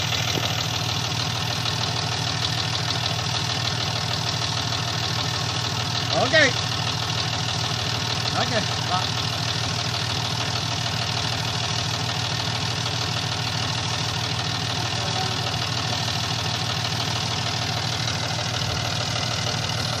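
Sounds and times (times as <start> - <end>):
tractor diesel engine idling: 0.0 - 20.0.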